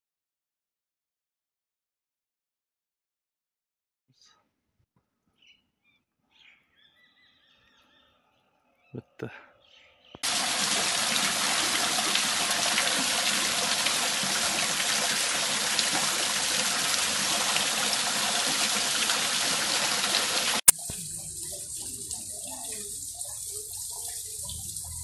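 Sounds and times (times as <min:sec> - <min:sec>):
fountain water splashing: 0:10.2 - 0:25.0.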